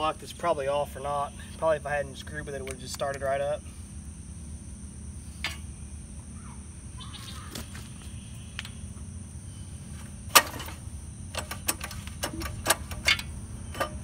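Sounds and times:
tools clicking and tapping on engine: 9.9s - 14.0s.

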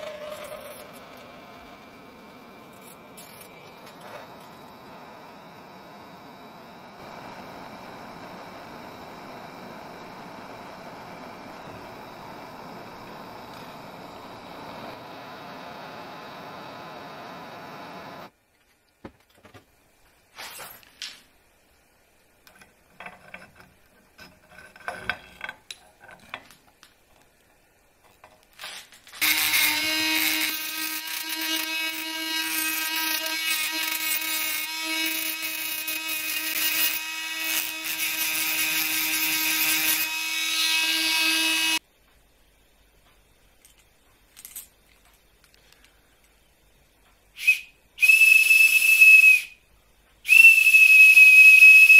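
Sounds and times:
rotary tool grinding metal: 0.0s - 1.4s, 28.7s - 41.8s
gas torch hissing: 0.0s - 18.4s.

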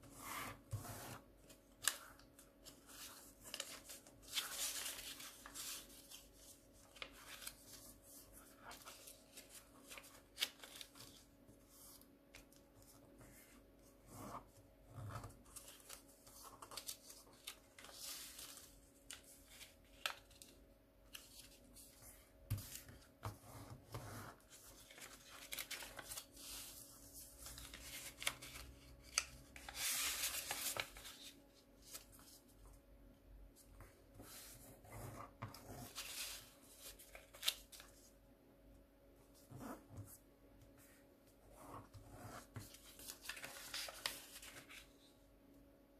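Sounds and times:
paper rustling and crinkling: 1.4s - 13.6s, 15.0s - 23.3s, 24.3s - 32.8s, 35.4s - 38.2s, 41.7s - 45.1s.

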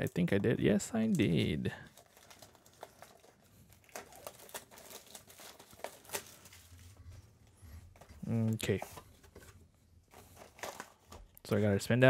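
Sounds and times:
cardboard packaging crinkling: 0.9s - 7.2s, 10.1s - 11.4s.

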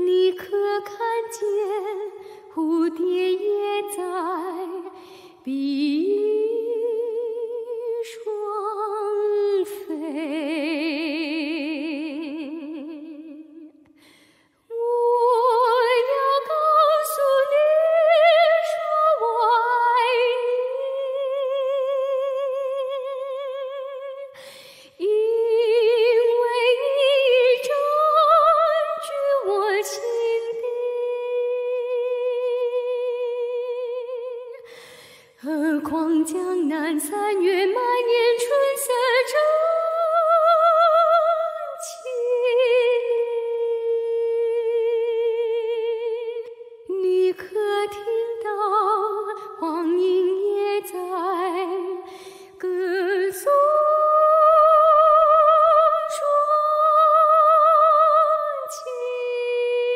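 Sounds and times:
woman singing unaccompanied: 0.0s - 13.7s, 14.7s - 34.7s, 35.4s - 59.9s.

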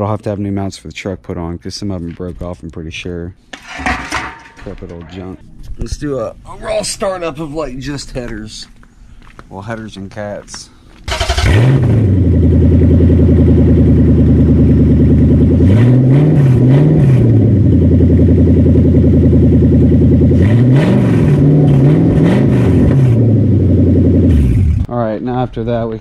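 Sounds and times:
truck engine idling and revving: 11.1s - 24.9s.

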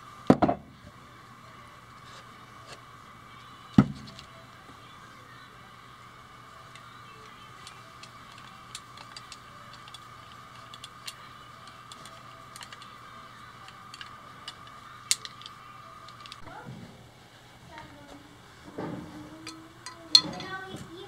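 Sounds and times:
faint steady hum: 0.0s - 21.0s
small metal parts clicking: 7.6s - 13.0s, 13.6s - 16.5s.

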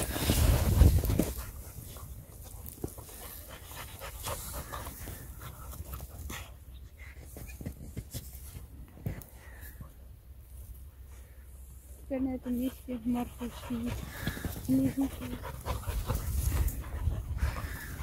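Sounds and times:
dogs panting: 0.0s - 8.2s, 12.2s - 18.0s
rustles and crunches in snow: 0.0s - 18.0s.

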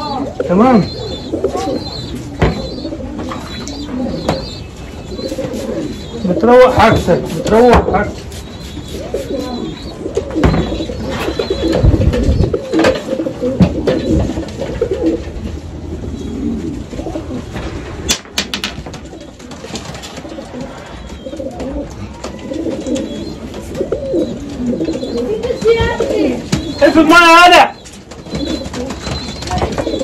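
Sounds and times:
pigeons cooing: 0.0s - 30.0s
knocks and rattles of cages: 10.4s - 15.5s, 17.5s - 27.1s, 27.8s - 30.0s.

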